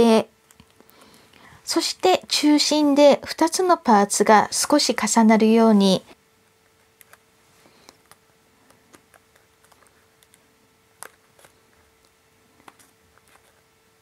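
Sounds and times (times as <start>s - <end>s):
paper crinkling and ticking: 6.5s - 13.8s.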